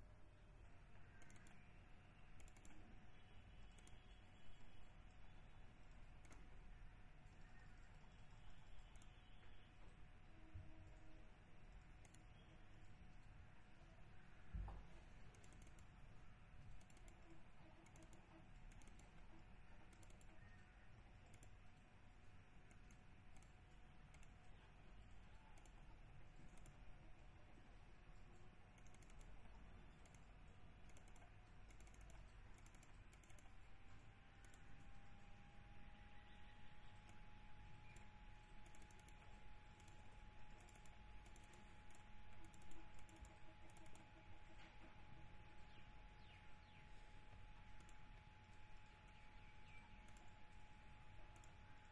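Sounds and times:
faint steady hum: 0:00.0 - 0:51.9
mouse clicking: 0:00.9 - 0:06.6, 0:07.2 - 0:10.0, 0:10.7 - 0:13.4, 0:14.3 - 0:35.3, 0:36.2 - 0:51.9
computer keyboard clicking: 0:01.0 - 0:01.6, 0:02.4 - 0:02.9, 0:11.8 - 0:12.5, 0:15.3 - 0:15.9, 0:16.7 - 0:20.6, 0:21.2 - 0:21.6, 0:22.7 - 0:24.4, 0:25.0 - 0:26.9, 0:28.7 - 0:34.9, 0:37.8 - 0:44.6, 0:47.1 - 0:49.2, 0:49.9 - 0:51.9.

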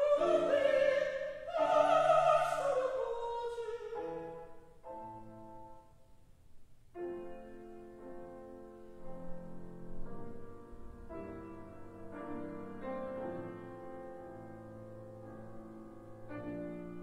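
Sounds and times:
piano playing slow chords: 0:06.9 - 0:17.0.

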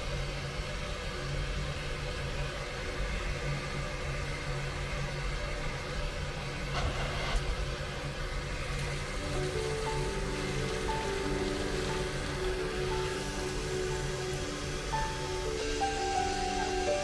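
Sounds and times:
low hum: 0:00.0 - 0:17.0
steam hissing: 0:00.0 - 0:17.0.

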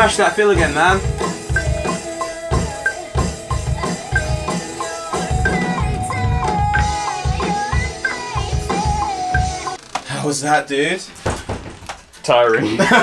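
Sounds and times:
band music with steady drum beat: 0:00.0 - 0:09.8.

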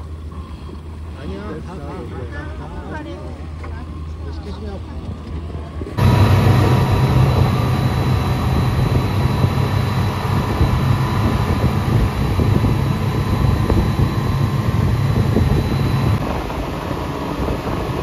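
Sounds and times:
speedboat engines droning: 0:00.0 - 0:18.0
wind rushing: 0:06.0 - 0:17.9.

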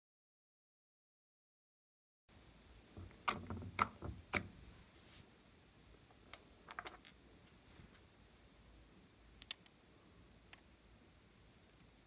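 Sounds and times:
sharp clicks and taps: 0:03.0 - 0:04.5.

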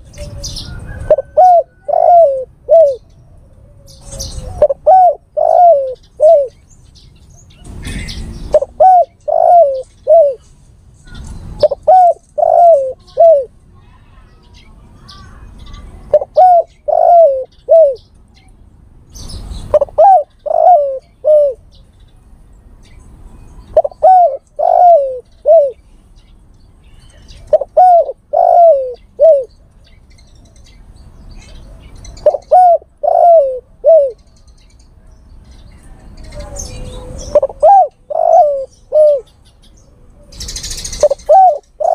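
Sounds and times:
dove cooing: 0:00.0 - 0:06.6, 0:07.8 - 0:10.4, 0:11.6 - 0:13.6, 0:16.1 - 0:18.0, 0:19.7 - 0:21.6, 0:23.7 - 0:25.8, 0:27.3 - 0:29.6, 0:31.5 - 0:34.3, 0:36.4 - 0:39.4, 0:40.2 - 0:41.9.

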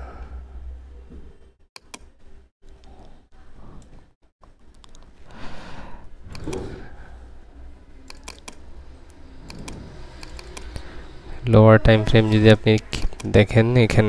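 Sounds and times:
computer mouse clicks: 0:01.8 - 0:03.0, 0:04.7 - 0:05.1, 0:06.3 - 0:06.7, 0:08.1 - 0:10.9, 0:12.7 - 0:13.4.

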